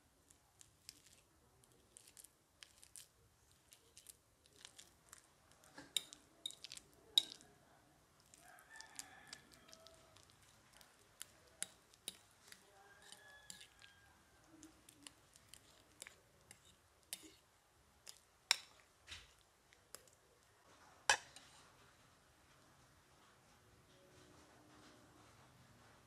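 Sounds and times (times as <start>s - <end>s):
fork clinking against ceramic bowl: 5.9s - 7.4s, 11.6s - 13.9s.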